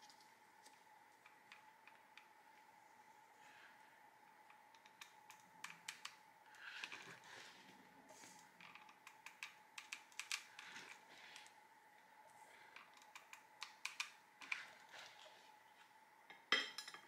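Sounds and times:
faint high hum: 0:00.0 - 0:17.0
soft paper rustles: 0:14.4 - 0:16.0.

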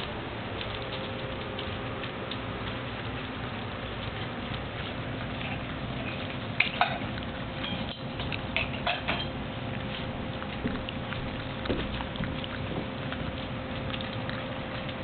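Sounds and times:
kibble clicking against bowls: 0:00.0 - 0:15.0
puppies chewing kibble: 0:00.0 - 0:15.0.

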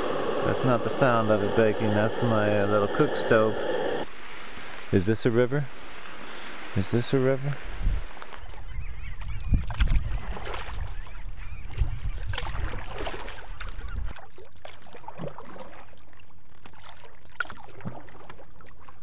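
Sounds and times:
wind buffeting microphone: 0:00.0 - 0:04.1, 0:07.6 - 0:14.2
paddle splashing in water: 0:08.1 - 0:19.0.

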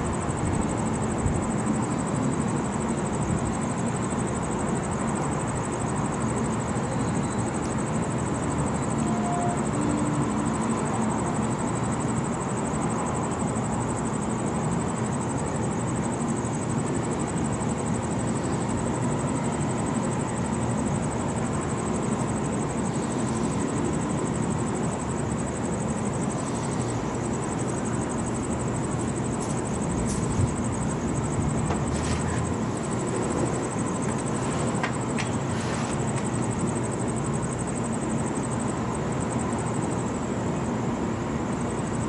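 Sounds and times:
city background hum: 0:00.0 - 0:42.0
faint high-pitched buzz: 0:08.8 - 0:11.9.

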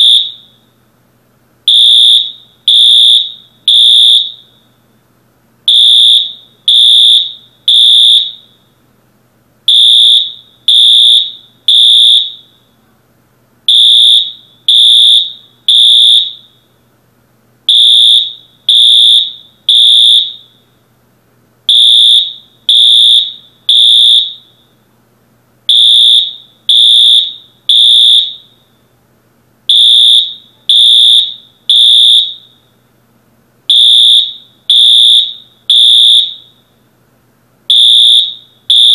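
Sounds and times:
fire alarm high beeps: 0:00.0 - 0:00.6, 0:01.7 - 0:04.7, 0:05.7 - 0:08.6, 0:09.7 - 0:12.7, 0:13.7 - 0:16.7, 0:17.7 - 0:20.7, 0:21.7 - 0:24.8, 0:25.7 - 0:28.8, 0:29.7 - 0:32.7, 0:33.7 - 0:36.7, 0:37.7 - 0:38.9.

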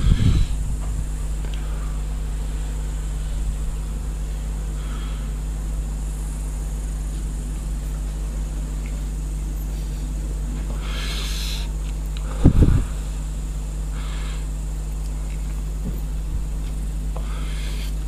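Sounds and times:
smoker exhaling: 0:00.0 - 0:06.2, 0:09.0 - 0:14.6, 0:15.8 - 0:18.0
steady low hum: 0:00.0 - 0:18.0.

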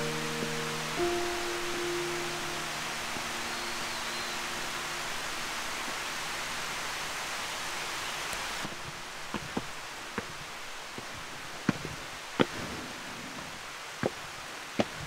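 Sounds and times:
steady rushing hiss: 0:00.0 - 0:15.0
footsteps on stone paving: 0:08.6 - 0:12.6, 0:14.0 - 0:15.0.

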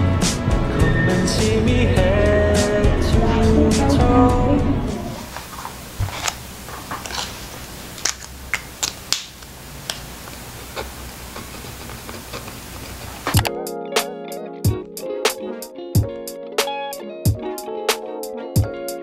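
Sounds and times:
background music: 0:00.0 - 0:05.3, 0:13.4 - 0:19.0.

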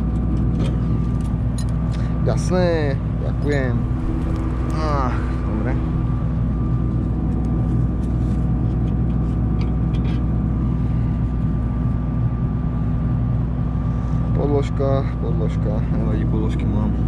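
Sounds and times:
combine harvester diesel engine running: 0:00.0 - 0:17.0.

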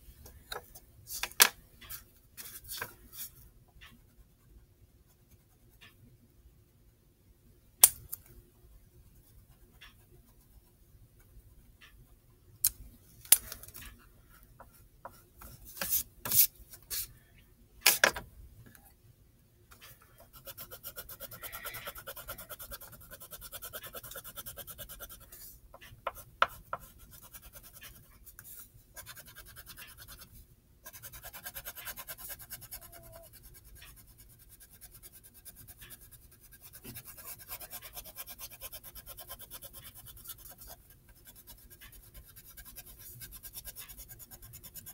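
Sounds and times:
pencil scratching on paper: 0:20.3 - 0:25.5, 0:26.1 - 0:44.9.

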